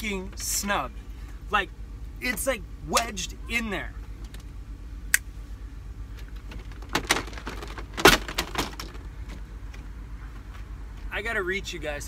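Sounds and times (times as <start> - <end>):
van engine idling: 0.0 - 12.0
plastic panels clicking and knocking: 6.4 - 9.0.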